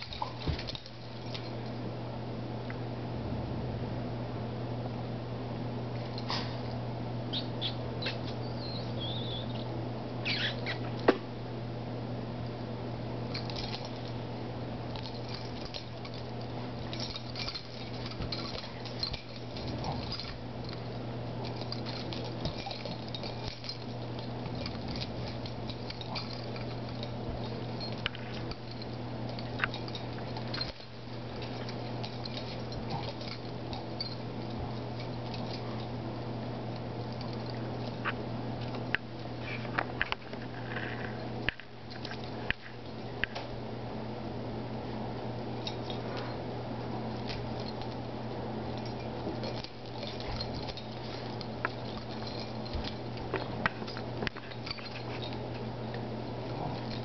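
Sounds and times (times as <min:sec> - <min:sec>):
dogs play-fighting: 0:00.0 - 0:01.9, 0:06.0 - 0:11.0, 0:13.2 - 0:57.0
steady low hum: 0:00.0 - 0:57.0
dog squeaks: 0:07.3 - 0:09.6, 0:10.2 - 0:10.9.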